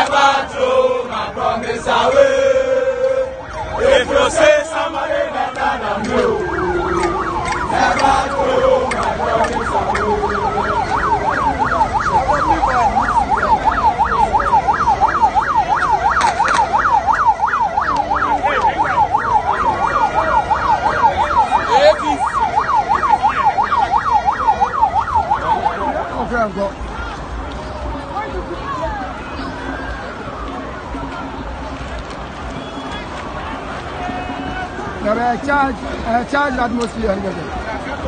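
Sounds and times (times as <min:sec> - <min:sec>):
siren wailing and yelping: 0:01.9 - 0:26.2.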